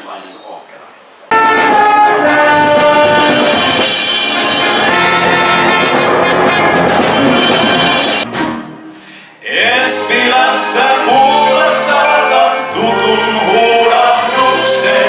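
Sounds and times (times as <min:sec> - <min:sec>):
orchestra playing loudly: 0:01.3 - 0:08.8, 0:10.0 - 0:15.0
man singing: 0:09.4 - 0:15.0.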